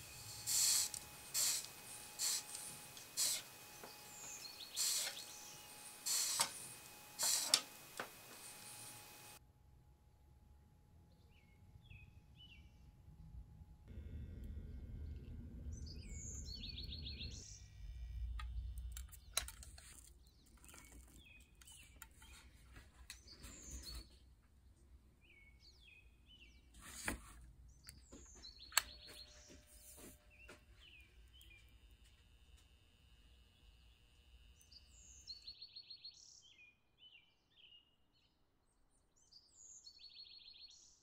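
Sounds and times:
faint birds chirping: 0.0s - 9.4s, 14.5s - 41.0s
sharp clicks: 0.2s - 9.4s
low rumble: 13.4s - 19.1s.

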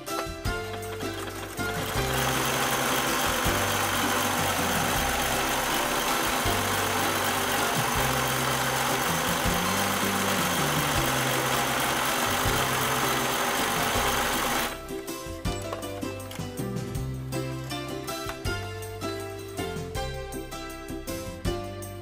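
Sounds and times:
music with plucked strings: 0.0s - 22.0s
sewing machine running: 0.6s - 14.9s.

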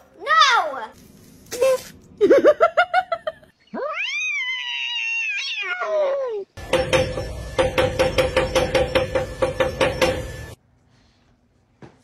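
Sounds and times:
cat yowling: 3.8s - 6.5s.

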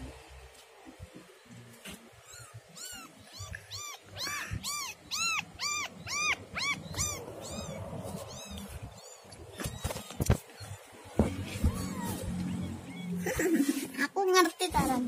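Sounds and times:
kitten mewing: 2.2s - 13.9s.

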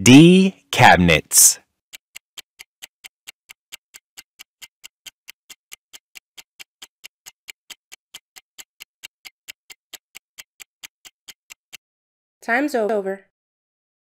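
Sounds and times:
clock-like timer ticking: 1.4s - 11.9s.

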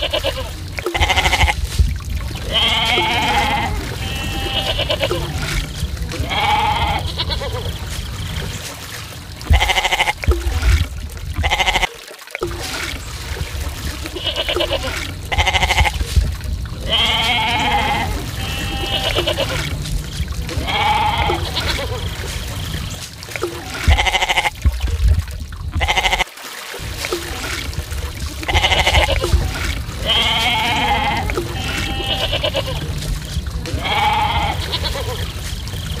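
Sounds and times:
goats bleating: 0.0s - 1.6s, 2.4s - 7.8s, 9.5s - 10.3s, 11.4s - 11.9s, 14.1s - 16.1s, 16.8s - 22.2s, 23.8s - 24.6s, 25.8s - 26.3s, 28.5s - 33.0s, 33.6s - 35.4s
low rumble: 15.1s - 23.3s, 23.9s - 26.2s, 26.8s - 36.0s.

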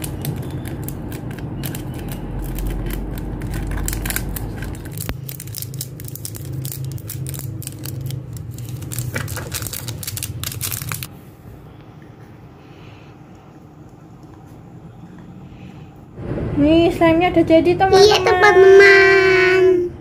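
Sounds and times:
plastic bag crinkling: 0.0s - 11.1s
low steady hum: 0.0s - 20.0s.

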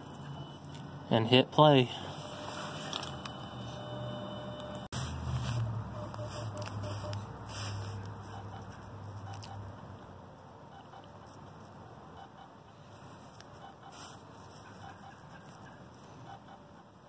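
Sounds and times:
fusion splicer humming: 0.0s - 9.7s.

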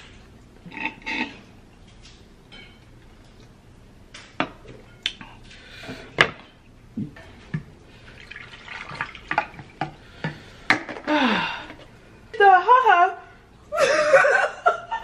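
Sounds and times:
juice pouring and splashing: 7.9s - 10.6s.

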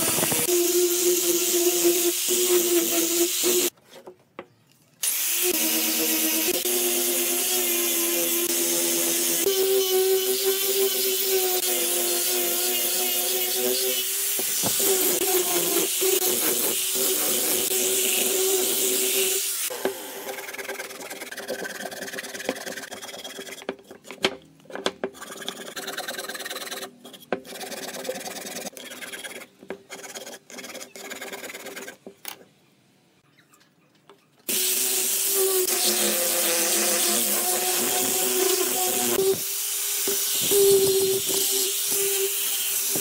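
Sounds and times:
angle grinder sanding wood: 0.0s - 3.8s, 5.0s - 24.0s, 34.5s - 43.0s
rubbing and scraping on wood: 20.4s - 32.1s.

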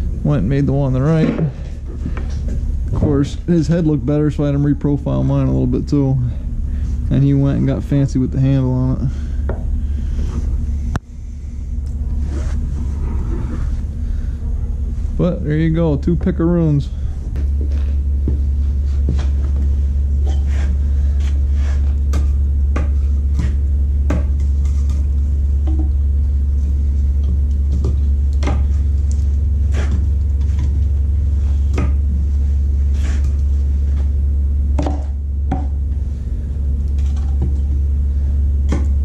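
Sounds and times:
steady low rumble: 0.0s - 39.0s
wooden logs knocking: 34.8s - 35.8s.

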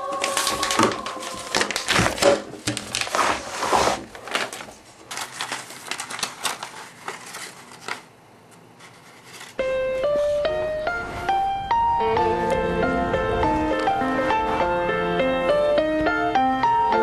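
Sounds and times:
paper crinkling and rustling: 0.0s - 9.6s.

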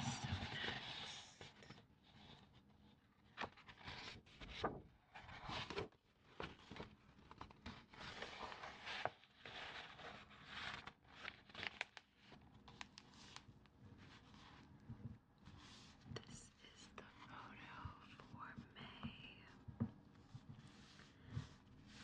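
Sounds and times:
scratching on paper: 20.1s - 22.0s.

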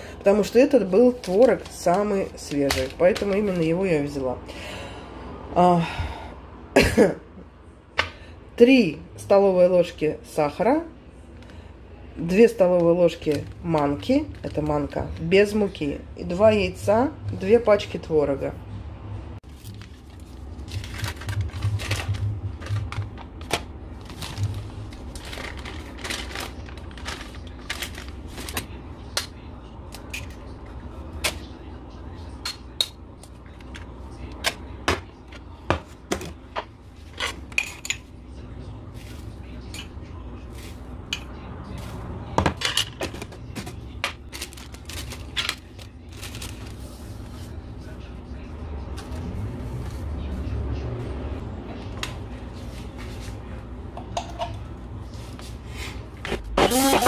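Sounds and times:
low steady hum: 0.0s - 57.0s
plastic film crinkling: 19.4s - 28.8s, 44.2s - 47.4s.

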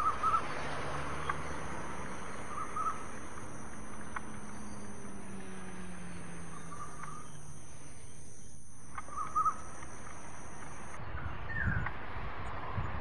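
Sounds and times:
high insect drone: 0.0s - 11.0s.

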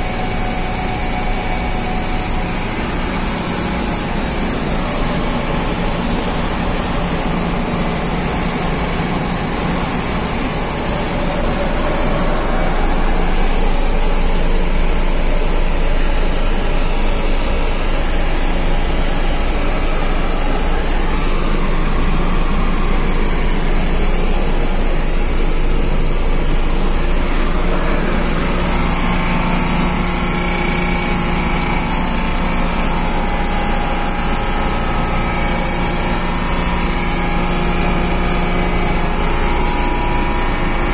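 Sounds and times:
air-conditioning machinery drone: 0.0s - 40.9s.

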